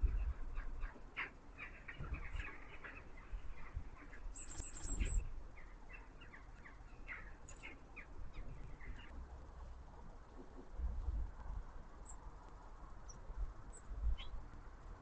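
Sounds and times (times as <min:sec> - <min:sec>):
small birds chirping: 0:00.0 - 0:09.2, 0:13.0 - 0:14.5.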